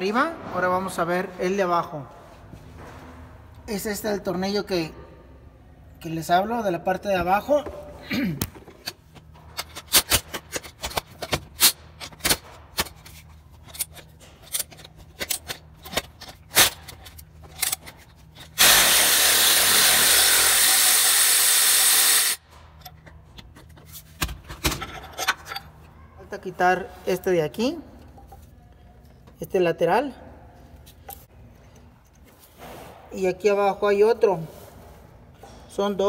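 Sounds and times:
power tool running: 0:18.6 - 0:22.4.

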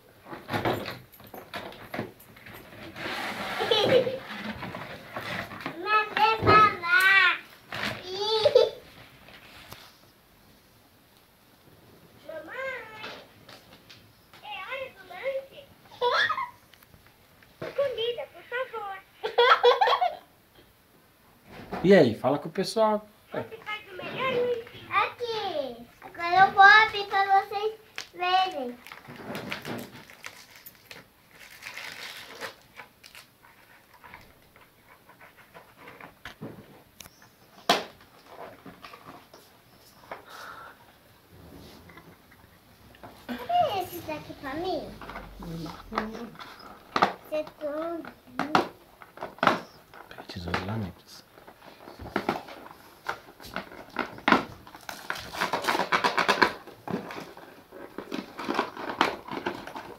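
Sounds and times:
cardboard packaging scraping: 0:02.5 - 0:05.8, 0:28.6 - 0:36.2, 0:51.4 - 0:59.9
cardboard handled and scraped: 0:02.8 - 0:05.7
plastic wrapping crinkling: 0:26.1 - 0:36.2, 0:49.0 - 0:59.9.

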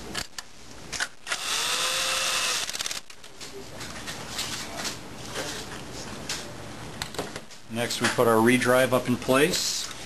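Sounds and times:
power screwdriver whine: 0:01.2 - 0:03.0
quick clicks: 0:02.6 - 0:03.3.

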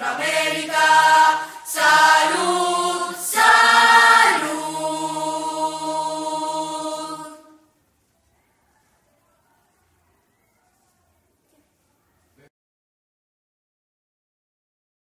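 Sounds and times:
choir singing: 0:00.0 - 0:07.7.

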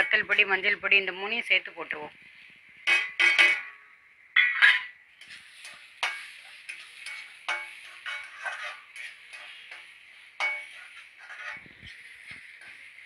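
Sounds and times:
metal spatula scraping a pan: 0:02.4 - 0:03.8, 0:04.6 - 0:13.0.

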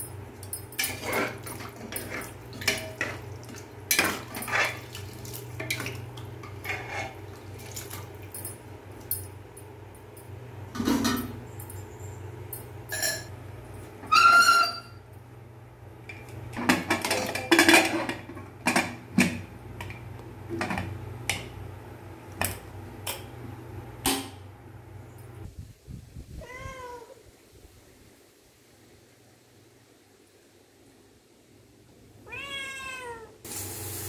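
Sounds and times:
metal clinks and clatters: 0:00.0 - 0:03.1, 0:07.6 - 0:13.9
cat meowing: 0:26.4 - 0:27.2, 0:32.2 - 0:33.5.

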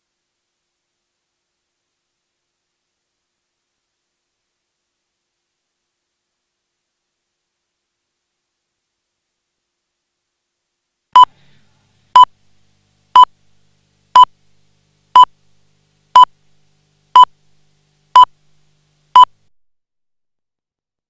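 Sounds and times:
short electronic beeps: 0:11.2 - 0:11.4.

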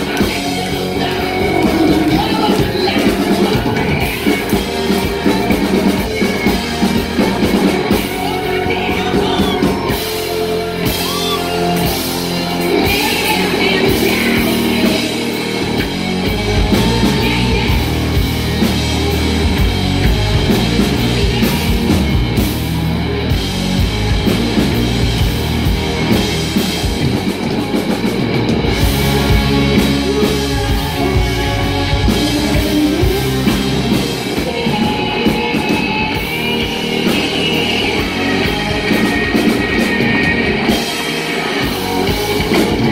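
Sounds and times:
person singing: 0:00.0 - 0:18.8, 0:20.3 - 0:22.2, 0:28.9 - 0:42.9
bass guitar: 0:00.0 - 0:42.9
drum kit: 0:00.0 - 0:42.9
electric guitars: 0:00.0 - 0:42.9.

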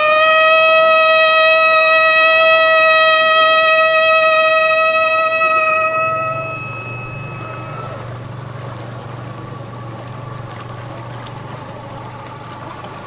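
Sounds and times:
held high musical note: 0:00.0 - 0:08.6
boat motor humming: 0:00.0 - 0:13.0
outdoor noise: 0:00.0 - 0:13.0.

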